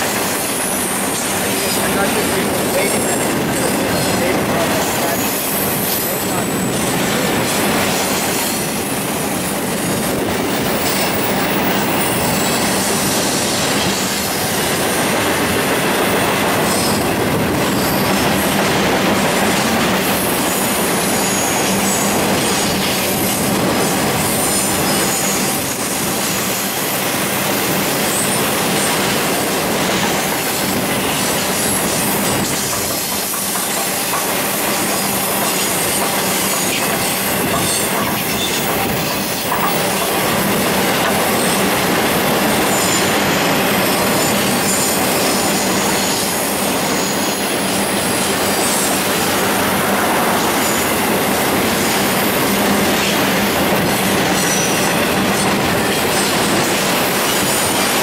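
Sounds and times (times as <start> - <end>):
freight train rumbling past: 0.0 - 58.0.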